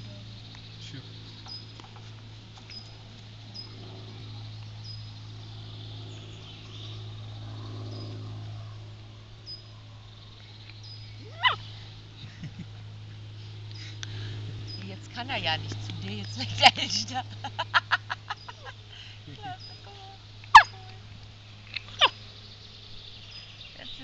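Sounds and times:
puppy yelping: 11.2s - 11.6s, 20.5s - 20.8s, 22.0s - 22.2s.

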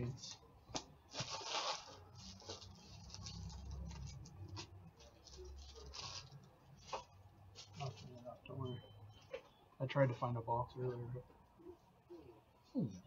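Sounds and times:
cards and packaging rustling: 0.7s - 8.4s.

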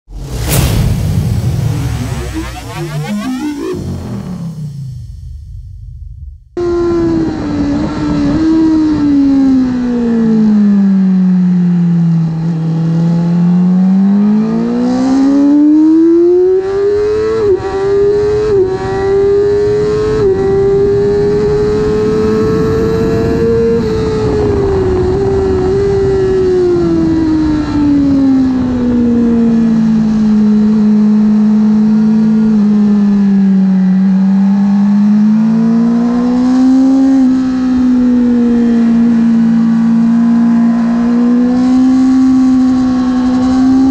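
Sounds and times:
wind rush: 0.1s - 10.3s, 18.8s - 30.1s
motorcycle engine revving: 1.4s - 43.9s.

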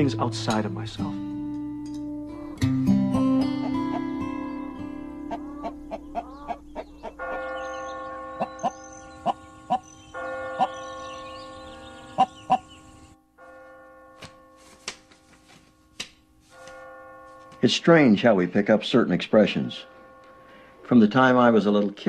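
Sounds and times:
chickens clucking: 3.5s - 7.5s
bell-like held drone: 7.2s - 15.8s, 16.5s - 22.0s.

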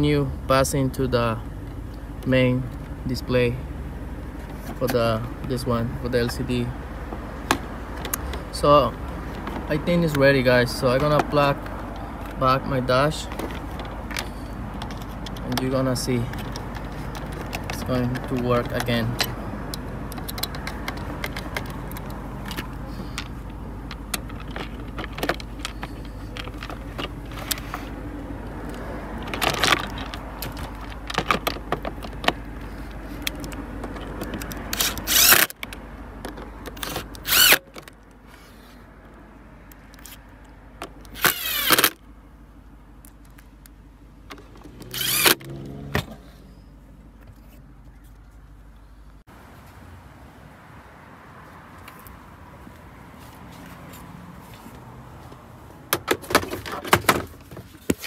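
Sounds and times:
clicks and knocks of handling: 7.1s - 8.6s, 9.2s - 10.3s, 10.9s - 12.5s, 13.1s - 38.4s, 55.3s - 58.0s
cordless drill driving screws: 34.8s - 35.5s, 36.8s - 37.6s, 41.2s - 42.0s, 44.8s - 45.4s.

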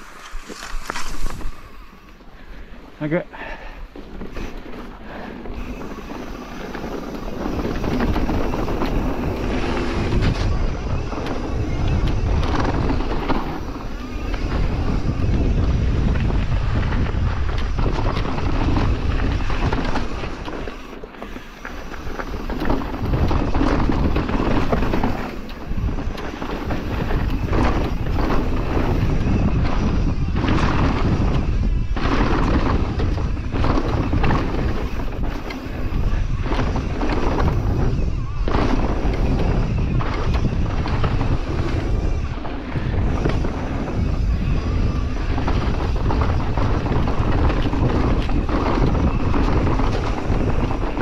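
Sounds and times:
mountain bike rattling and rolling: 0.0s - 51.0s
wind buffeting microphone: 0.0s - 51.0s.

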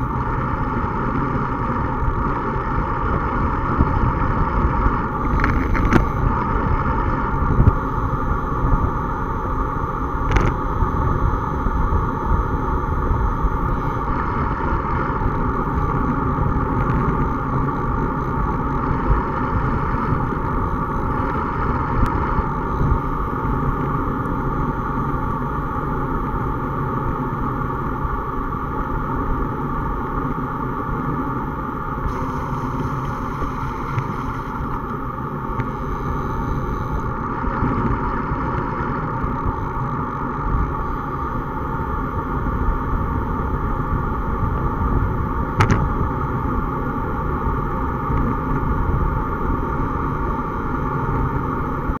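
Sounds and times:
bicycle tyre rumble: 0.0s - 52.0s
wind on microphone: 0.0s - 52.0s.

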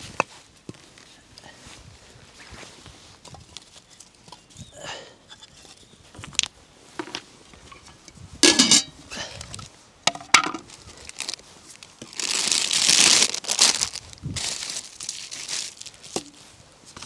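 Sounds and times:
knocks and clinks of objects: 7.0s - 9.0s
objects clattering: 7.0s - 9.0s, 10.1s - 10.8s.

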